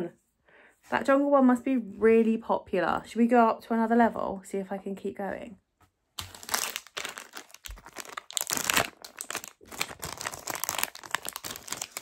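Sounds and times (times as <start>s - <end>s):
plastic packet crinkling: 6.2s - 12.0s.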